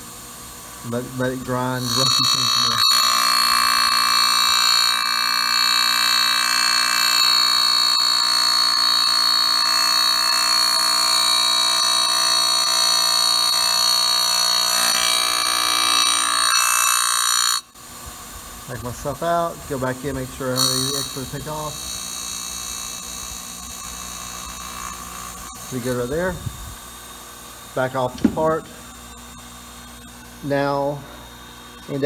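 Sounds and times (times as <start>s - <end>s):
grinding wheel screeching on steel: 1.5s - 17.6s, 20.1s - 26.4s.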